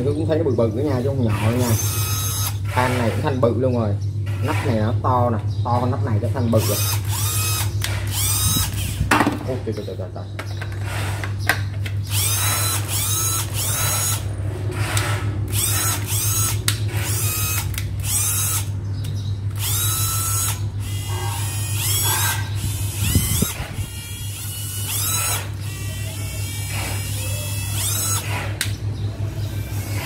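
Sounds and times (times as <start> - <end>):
cordless drill whining: 1.0 - 3.3, 6.6 - 9.1, 12.1 - 14.2, 14.8 - 18.7, 19.5 - 28.8.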